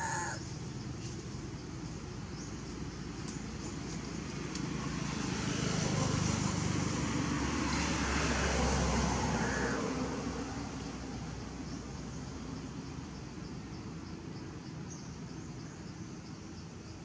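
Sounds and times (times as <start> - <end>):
motor vehicle passing by: 3.5 - 12.9.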